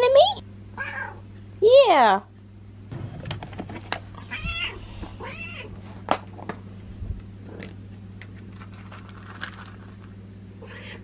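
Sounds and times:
cat meowing: 0.8 - 1.2, 4.3 - 5.7, 10.6 - 11.0.

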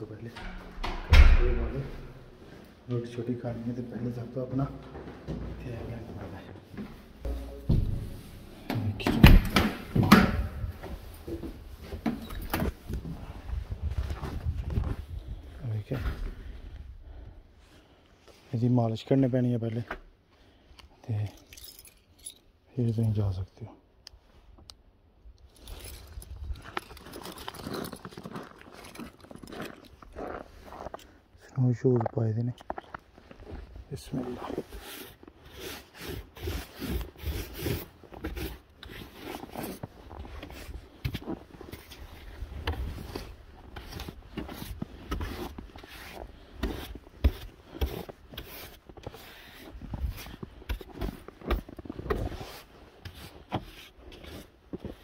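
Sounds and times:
brush sweeping snow off car: 44.5 - 50.8.

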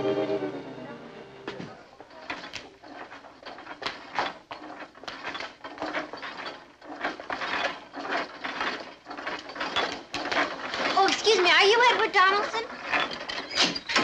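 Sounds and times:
knocks clatter and scuffs: 1.4 - 14.0.

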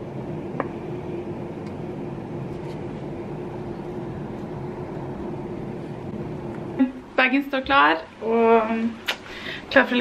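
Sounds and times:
machine hum: 0.0 - 10.0.

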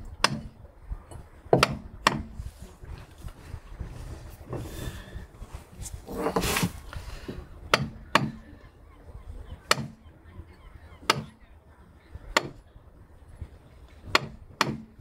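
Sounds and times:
mallet knocking on caulking iron: 1.5 - 2.3, 14.1 - 14.9.

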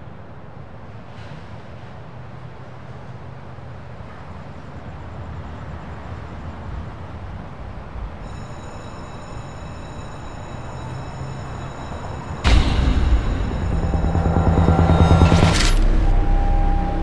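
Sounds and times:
low rumbling ambience: 8.1 - 17.0
faint high steady tones: 8.2 - 17.0.

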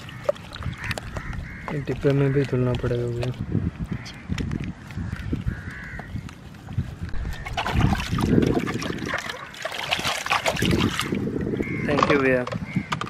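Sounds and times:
water splashing in a basin: 0.0 - 3.4, 7.1 - 12.3.

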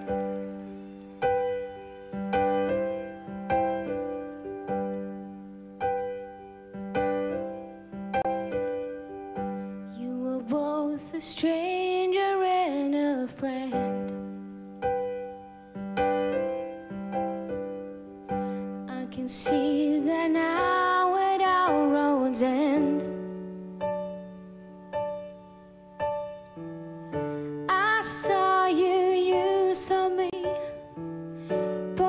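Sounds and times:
piano chords: 0.0 - 32.0
woman singing ballad: 9.9 - 14.3, 18.8 - 23.3, 27.6 - 30.9.

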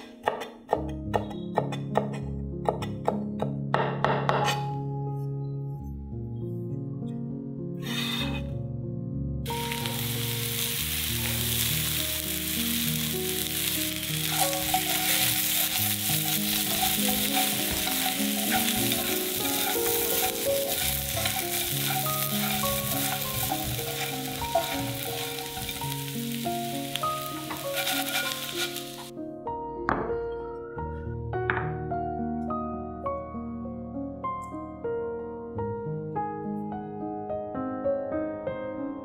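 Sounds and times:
soft background music: 0.0 - 39.0
food sizzling in a pan: 9.5 - 29.1.

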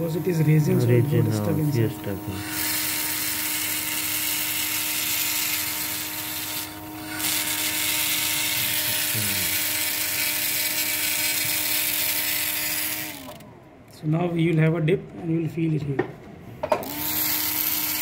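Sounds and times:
drill grinding into plastic: 0.0 - 13.5, 16.8 - 18.0
surgical drill whine: 0.0 - 13.5.

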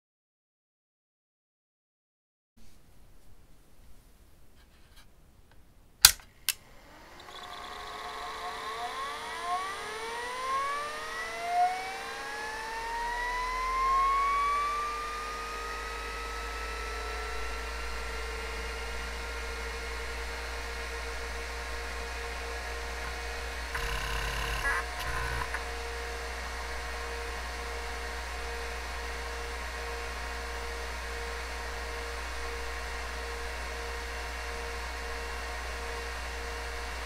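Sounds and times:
hard disk motor whine: 6.4 - 37.0
low hum: 16.0 - 37.0.

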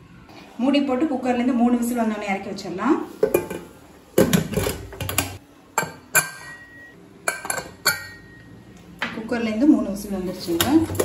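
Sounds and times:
metal lid clinking: 3.2 - 8.4.

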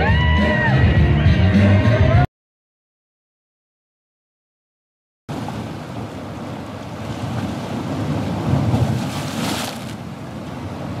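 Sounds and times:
rushing churning water: 5.3 - 11.0
wind buffeting microphone: 5.3 - 11.0.

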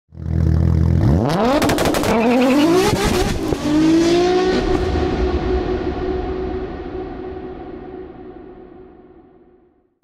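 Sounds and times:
car engine revving: 0.2 - 5.2.

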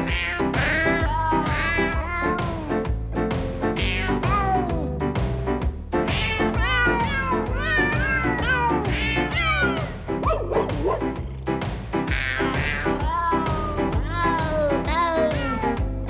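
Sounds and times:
cat yowl: 0.0 - 2.7, 3.8 - 4.8, 6.1 - 10.5, 12.1 - 15.8
cat meows melody: 0.0 - 2.9, 3.6 - 5.1, 6.0 - 11.2, 12.1 - 16.0
backing track with bass beat: 4.3 - 14.7.

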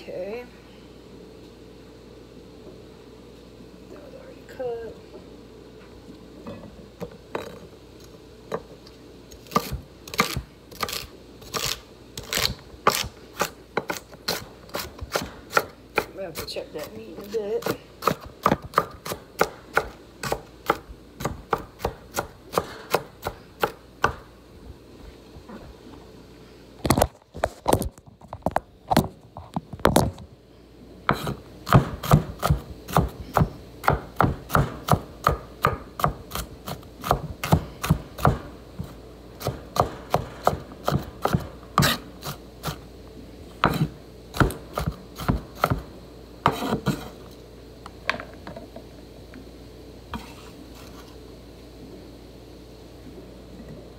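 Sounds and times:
knife chopping on wooden board: 31.1 - 42.8, 43.6 - 45.9.

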